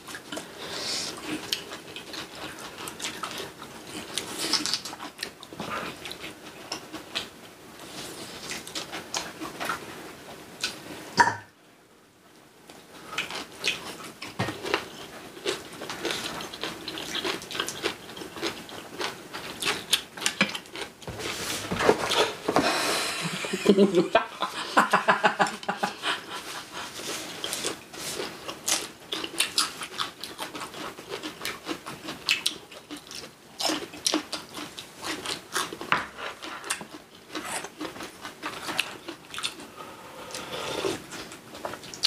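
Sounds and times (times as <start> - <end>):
chewing and biting food: 1.2 - 7.3, 13.2 - 21.0, 27.2 - 39.7.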